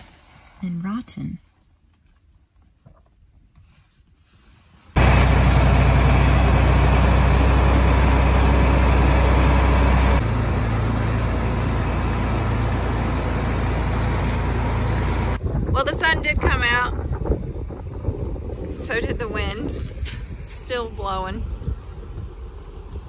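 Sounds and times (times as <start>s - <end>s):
tractor engine running: 5.0s - 15.4s.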